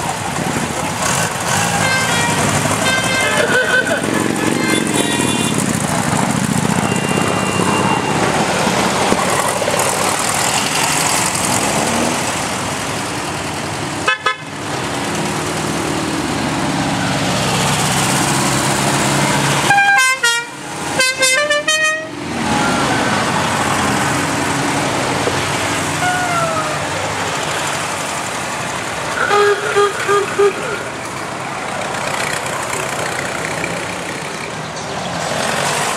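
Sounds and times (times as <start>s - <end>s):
motorcycle trike engines: 0.0s - 35.9s
horn honks: 1.5s - 5.8s, 14.0s - 14.5s, 19.6s - 22.2s, 29.2s - 30.9s.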